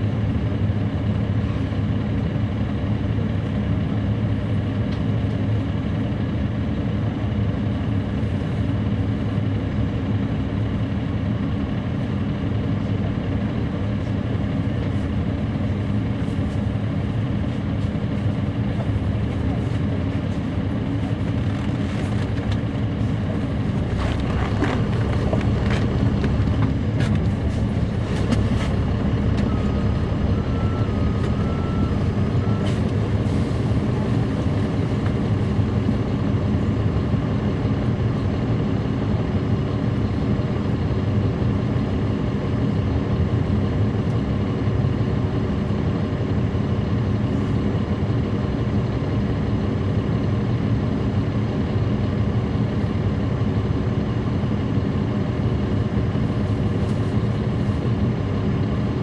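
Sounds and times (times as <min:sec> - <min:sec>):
bus diesel engine droning: 0:00.0 - 0:59.0
faint short tone: 0:29.3 - 0:33.0.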